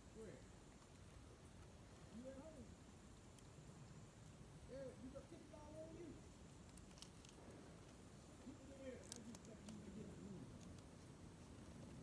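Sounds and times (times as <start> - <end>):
faint ticks: 3.1 - 4.4, 6.4 - 12.0.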